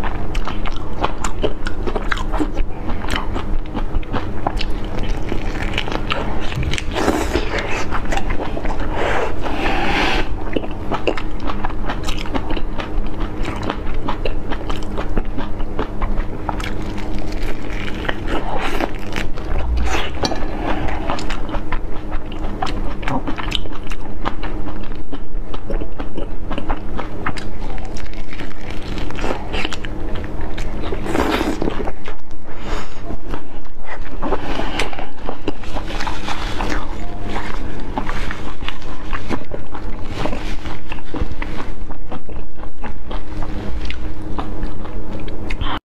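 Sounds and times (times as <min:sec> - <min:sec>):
chewing shrimp shells: 0:00.0 - 0:09.6, 0:10.4 - 0:45.8
faint steady hum: 0:00.0 - 0:45.8.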